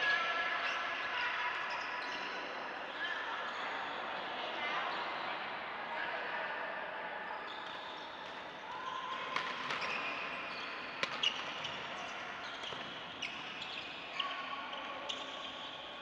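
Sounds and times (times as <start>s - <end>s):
rackets striking shuttlecocks: 9.1s - 9.9s, 11.0s - 11.9s
shoes squeaking on floor: 9.2s - 15.9s.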